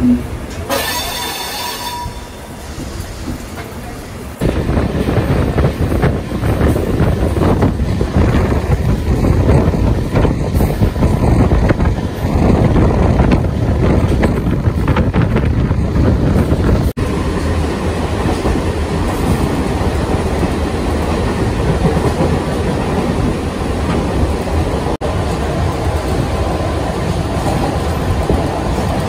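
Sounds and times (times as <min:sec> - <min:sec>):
train wheels running on rails: 0:00.0 - 0:29.0.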